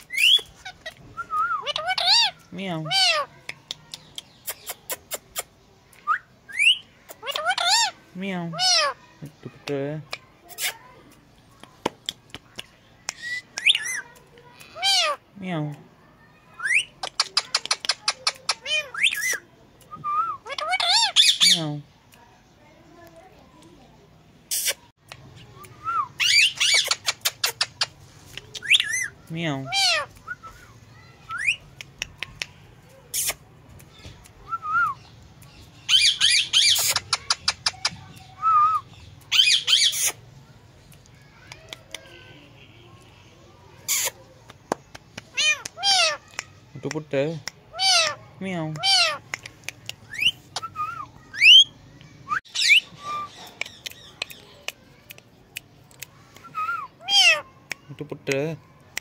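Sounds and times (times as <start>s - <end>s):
parakeet whistles and chirps: 0.0s - 0.5s, 6.1s - 7.8s, 50.1s - 54.2s
parakeet squawks and chirps: 0.0s - 1.0s, 1.6s - 3.3s, 6.5s - 9.0s, 13.2s - 15.2s, 16.6s - 19.4s, 20.3s - 21.7s, 26.0s - 30.2s, 34.9s - 40.2s, 43.8s - 44.2s, 45.3s - 46.2s, 47.7s - 48.2s, 48.8s - 49.3s, 50.1s - 51.8s, 52.4s - 54.6s, 56.5s - 57.5s.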